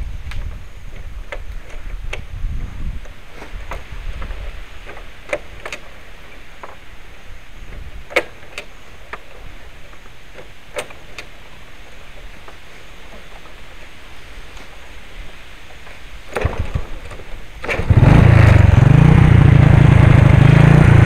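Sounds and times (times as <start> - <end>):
motorbike engine rumble: 14.6 - 21.0.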